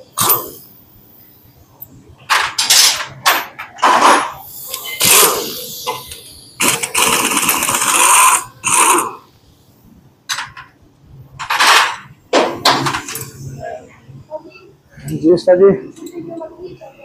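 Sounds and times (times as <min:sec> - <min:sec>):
pneumatic impact wrench: 0:00.2 - 0:00.7, 0:03.8 - 0:09.3.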